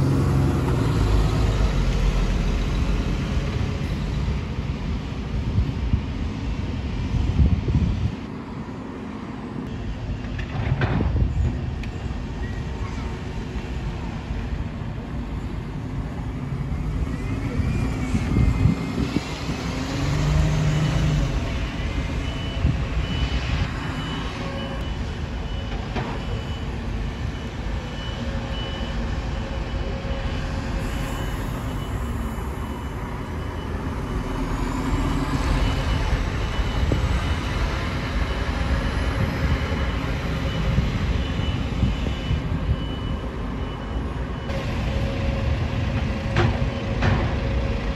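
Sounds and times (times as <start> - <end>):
bus engines running: 0.0 - 47.9
reversing alarm beeps: 17.2 - 47.7.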